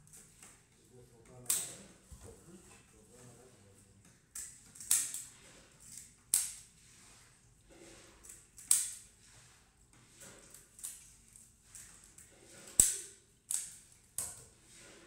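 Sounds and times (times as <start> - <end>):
fish scaler scraping scales: 5.3 - 15.0.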